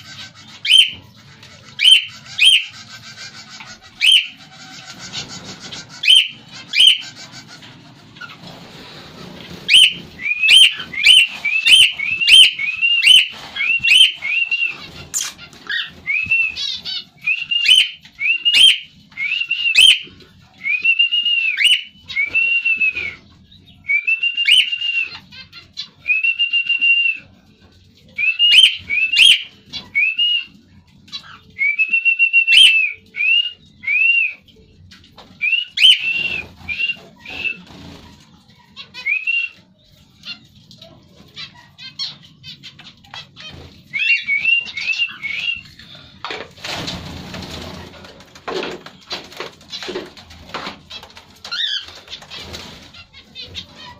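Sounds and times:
cockatiel whistling: 0:00.6 - 0:01.0, 0:01.8 - 0:02.7, 0:04.0 - 0:04.4, 0:06.0 - 0:07.1, 0:09.7 - 0:23.2, 0:23.8 - 0:25.3, 0:28.2 - 0:30.5, 0:31.2 - 0:34.4, 0:35.4 - 0:37.6, 0:38.8 - 0:39.6, 0:43.9 - 0:45.8.

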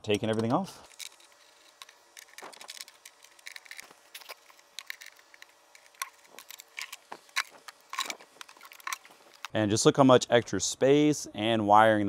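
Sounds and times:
clicks and knocks of battery cables: 0:00.1 - 0:09.6.

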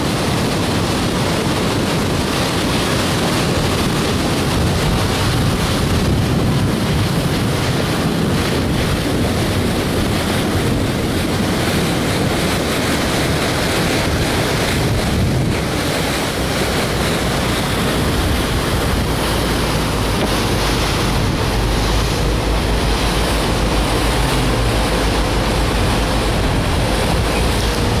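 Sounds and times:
water rushing along boat hull: 0:00.0 - 0:28.0
wind buffeting microphone: 0:00.0 - 0:28.0.

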